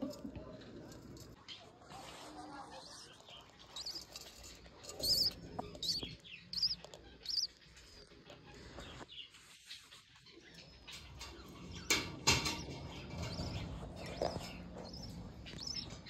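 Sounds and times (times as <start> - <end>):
budgerigar chirping: 4.9 - 7.6, 13.3 - 16.0.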